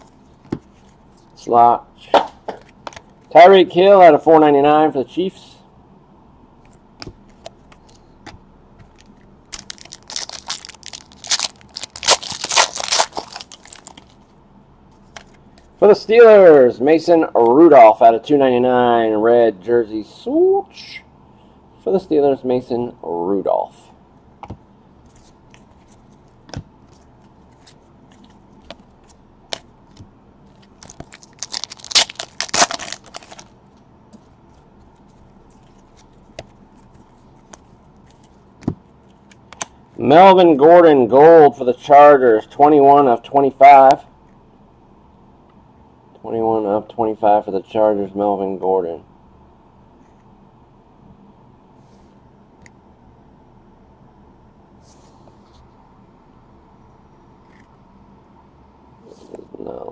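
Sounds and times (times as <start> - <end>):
foil wrapper crinkling and tearing: 9.5 - 14.2, 30.6 - 33.5.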